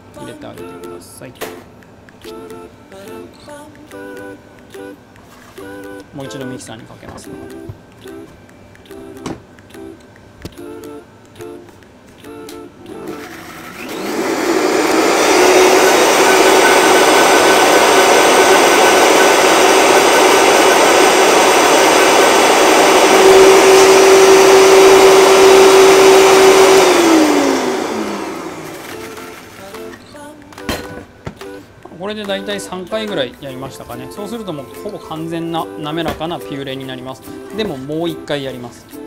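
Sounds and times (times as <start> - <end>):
blender motor running: 13.0 - 30.0.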